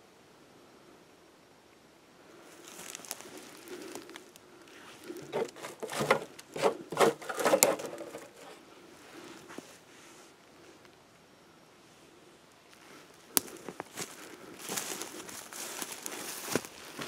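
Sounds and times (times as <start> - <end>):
dry twigs crackling and rustling: 2.5 - 8.6, 12.7 - 17.0.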